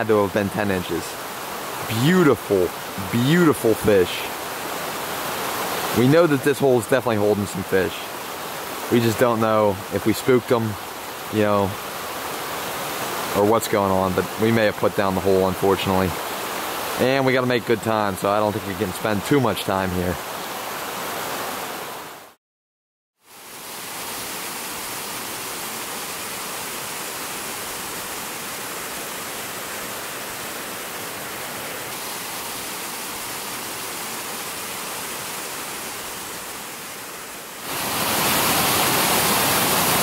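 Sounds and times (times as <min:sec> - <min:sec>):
waterfall rushing into pool: 0:00.0 - 0:22.4, 0:23.2 - 0:40.0.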